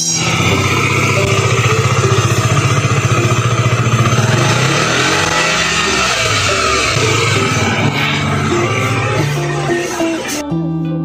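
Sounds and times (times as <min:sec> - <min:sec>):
motorcycle engine idling: 0:00.0 - 0:10.4.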